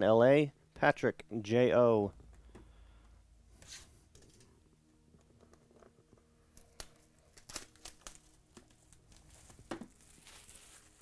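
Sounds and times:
plastic wrap tearing and crinkling: 6.5 - 11.0.

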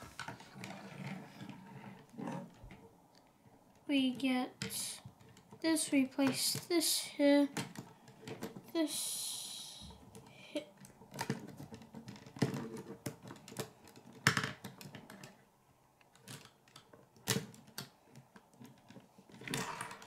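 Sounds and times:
plastic construction pieces clicking: 16.0 - 20.0.

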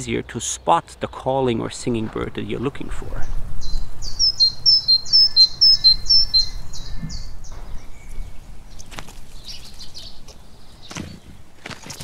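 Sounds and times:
faint bird chirps: 3.2 - 12.0.

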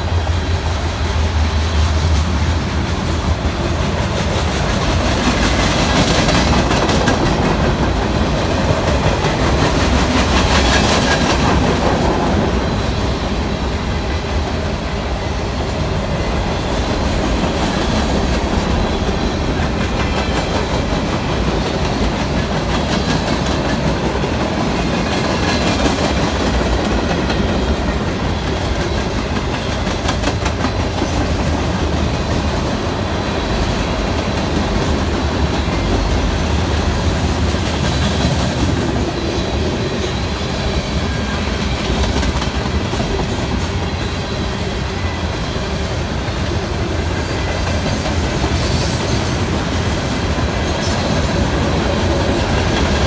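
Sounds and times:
train wheels rumbling on rail: 0.0 - 53.0
wheels clacking over rail joints: 2.0 - 12.6.

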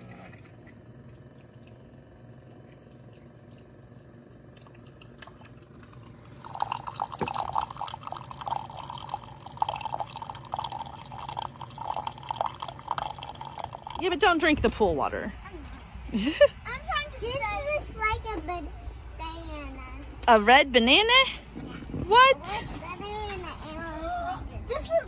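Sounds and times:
coffee maker humming: 0.0 - 15.3
coffee splashing into mug: 4.7 - 14.2.

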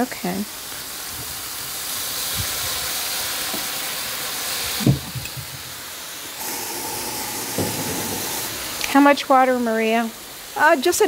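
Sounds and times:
sizzling in a hot skillet: 0.0 - 11.0
brief thump: 7.5 - 8.3.

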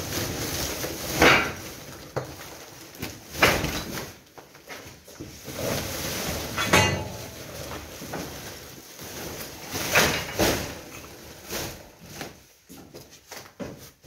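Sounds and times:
rubble sacks scraping and thumping: 0.0 - 14.0.

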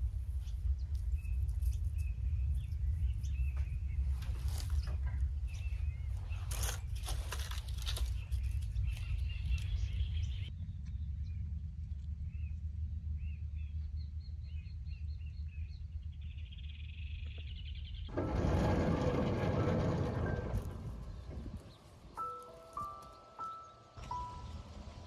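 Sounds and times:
small birds chirping: 0.0 - 18.1
low steady rumble: 0.0 - 23.1, 23.9 - 25.0
dry plant stems rustling: 4.1 - 5.0, 5.7 - 9.8.

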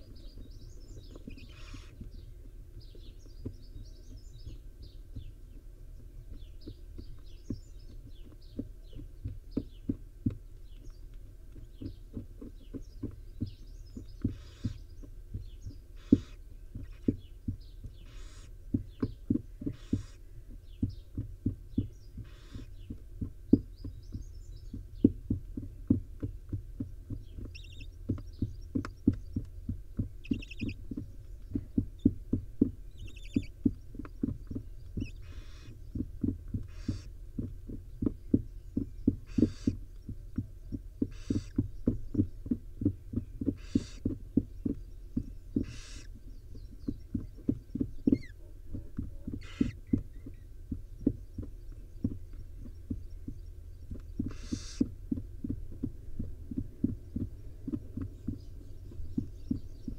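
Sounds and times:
thumps and taps in wooden nest box: 0.1 - 59.9
owl nestlings hissing begging calls: 1.3 - 2.0, 14.3 - 14.9, 16.0 - 17.2, 18.0 - 18.6, 19.7 - 20.3, 22.2 - 22.8, 27.5 - 27.9, 30.2 - 30.8, 33.0 - 33.5, 34.5 - 35.8, 36.6 - 37.1, 39.2 - 39.8, 41.0 - 41.7, 43.5 - 44.1, 45.6 - 46.2, 49.4 - 50.4, 54.1 - 55.0
quick chirps: 27.1 - 40.4, 41.0 - 55.4.

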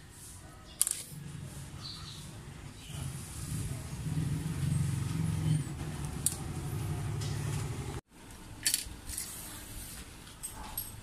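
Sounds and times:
motor vehicle engine rumbling: 1.2 - 8.0.

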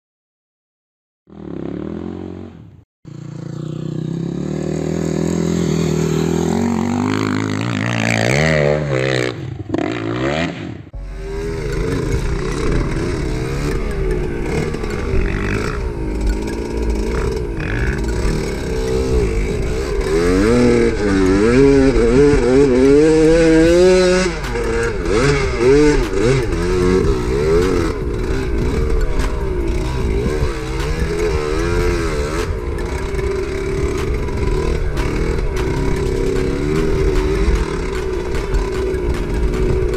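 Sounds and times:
dirt bike engine revving: 1.3 - 39.9
loud pitched sound: 11.0 - 39.9.

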